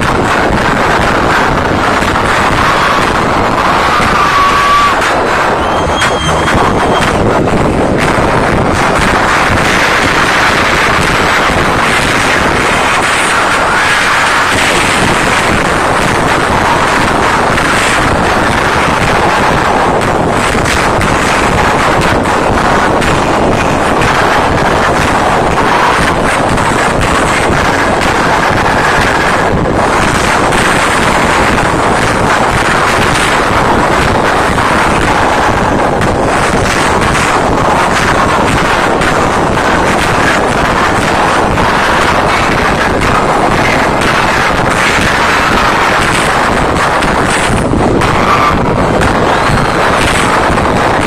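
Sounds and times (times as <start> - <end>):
crowd screaming: 0.0 - 51.0.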